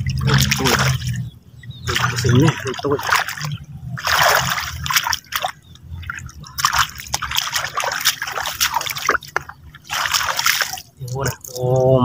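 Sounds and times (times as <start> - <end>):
water splashing and dripping: 0.0 - 12.0.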